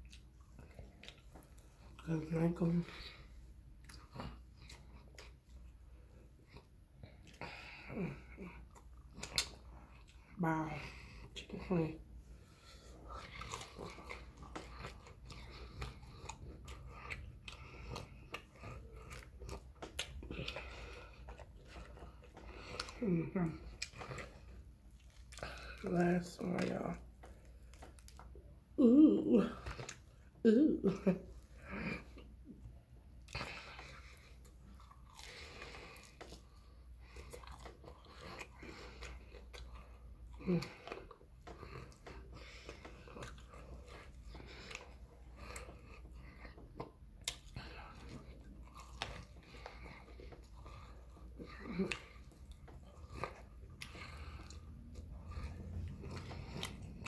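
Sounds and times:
chewing crunches: 0.0 - 2.1, 3.8 - 10.3, 12.5 - 28.4, 33.2 - 57.0
wet mouth clicks and smacks: 46.6 - 47.6.

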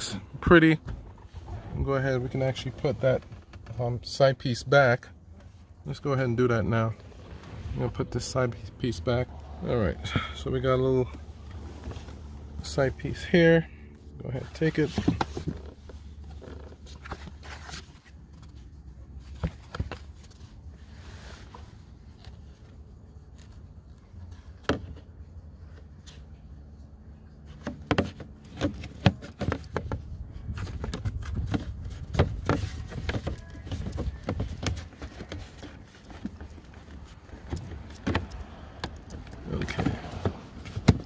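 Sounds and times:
low steady rumble: 0.0 - 41.0.

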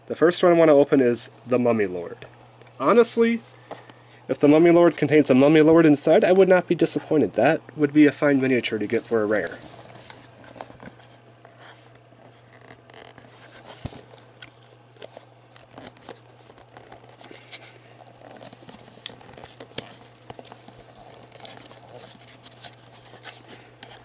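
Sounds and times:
cardboard packaging scraping and tearing: 8.9 - 24.0.

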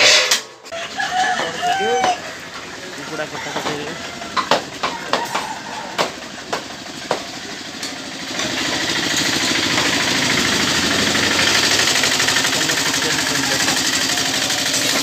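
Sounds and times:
auto-rickshaw engine running: 1.8 - 15.0
sharp knocks: 4.4 - 7.3.

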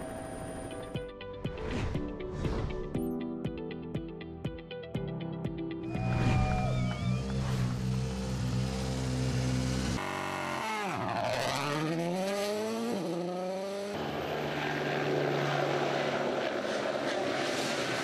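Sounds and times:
helicopter: 0.0 - 1.1, 14.0 - 18.0
background music: 0.0 - 7.8
rally car engine revving: 6.4 - 18.0.

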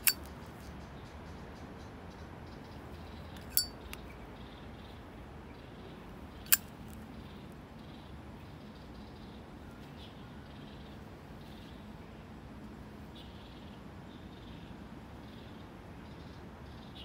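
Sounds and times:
lighter lid metallic ting: 0.0 - 0.2, 3.4 - 3.8
lighter lid snapping shut: 3.4 - 3.7.

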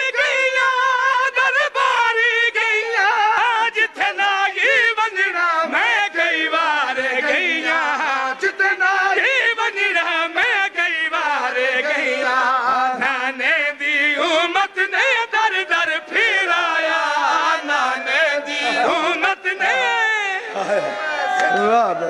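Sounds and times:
man chanting into a microphone: 0.0 - 20.5.

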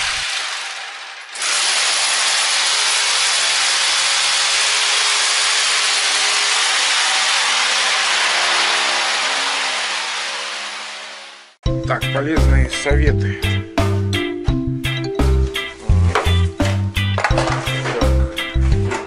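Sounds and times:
core drill grinding into wall: 0.0 - 11.6.

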